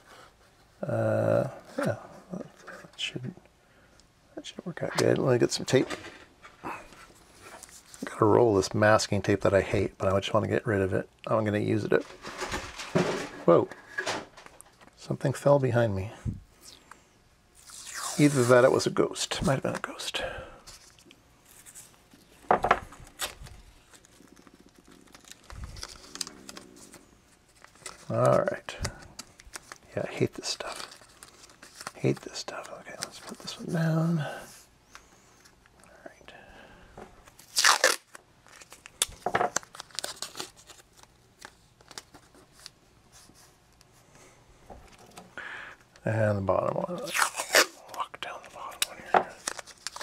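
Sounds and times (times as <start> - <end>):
masking tape ripping: 17.6 - 18.5, 37.4 - 40.8, 46.9 - 47.8.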